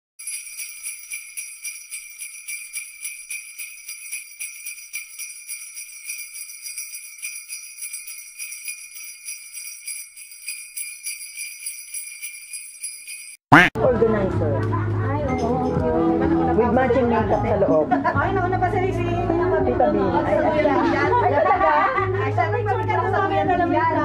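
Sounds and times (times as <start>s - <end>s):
jingle bells shaken: 0.2s - 13.4s.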